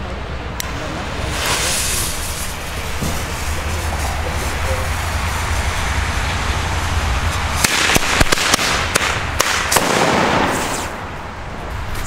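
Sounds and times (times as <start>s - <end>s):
ground firework hissing: 0.7s - 11.2s
firecracker bangs: 1.2s - 6.2s, 7.3s - 11.2s.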